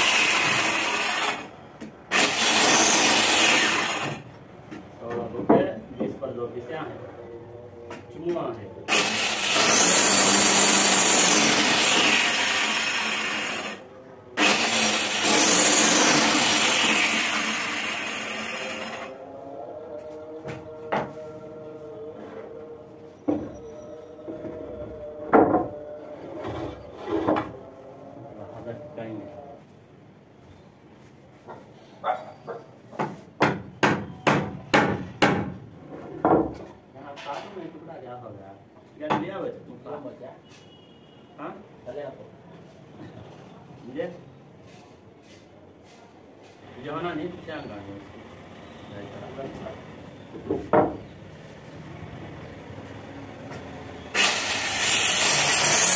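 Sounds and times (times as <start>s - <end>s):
electric planer cutting wood: 0.0s - 1.5s, 2.1s - 4.2s, 8.9s - 13.8s, 14.4s - 19.1s, 54.2s - 55.9s
hammer striking wood: 33.0s - 35.6s.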